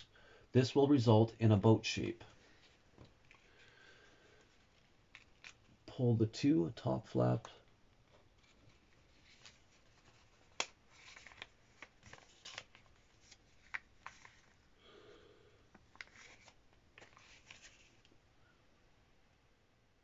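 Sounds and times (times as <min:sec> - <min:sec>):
paper crackling and rustling: 0:08.0 - 0:14.7, 0:15.7 - 0:18.1.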